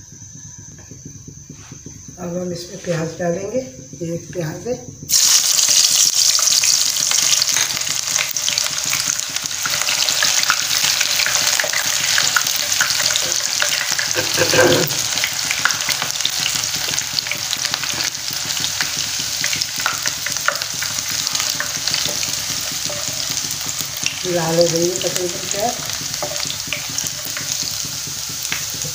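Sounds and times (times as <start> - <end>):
onion sizzling in hot oil: 0.1 - 28.9
wooden spatula stirring: 15.9 - 28.9.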